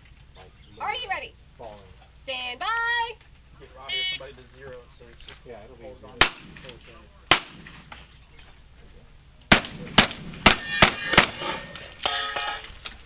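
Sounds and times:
lingering ringing tone: 3.8s - 4.3s, 10.6s - 12.8s
close gunshots: 6.2s - 6.7s, 7.3s - 7.9s, 9.5s - 11.7s.

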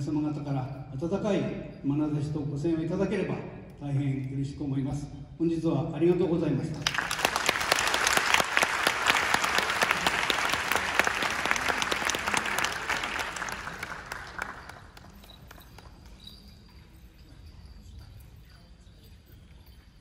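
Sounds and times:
faint stage sounds: 0.0s - 20.0s
audience applause: 6.8s - 15.6s.

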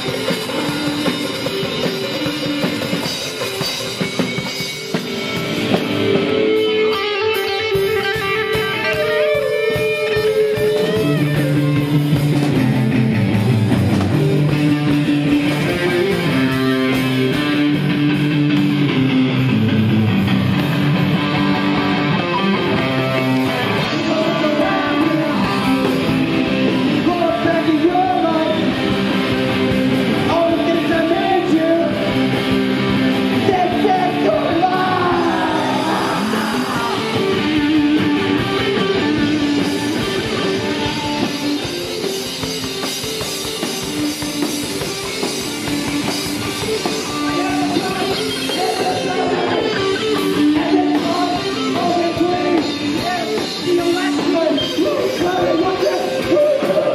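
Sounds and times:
electric guitar: 0.0s - 56.9s
live rock band playing: 0.0s - 56.9s
person singing: 22.3s - 28.8s, 33.4s - 37.5s, 46.8s - 56.9s.

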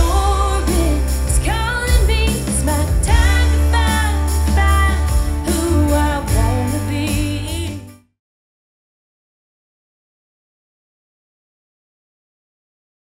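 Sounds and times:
heavy bass: 0.0s - 8.0s
pop song with singing: 0.0s - 8.0s.

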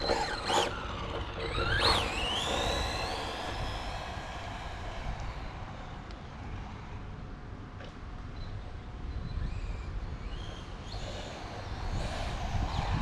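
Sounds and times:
electric motor whining: 0.0s - 5.8s, 10.4s - 13.0s.

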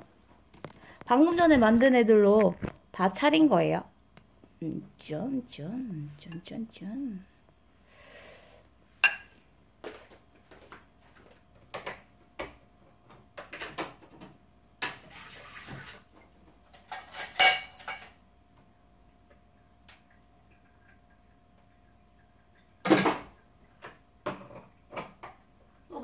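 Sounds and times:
dishes and cutlery clinking: 9.0s - 9.4s, 16.7s - 18.2s.

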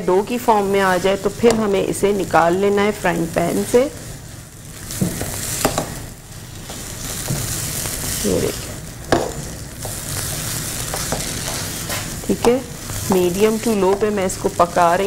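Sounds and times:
mixture sizzling in oil: 0.0s - 15.0s
spatula scraping pan: 0.2s - 2.7s, 9.8s - 15.0s.

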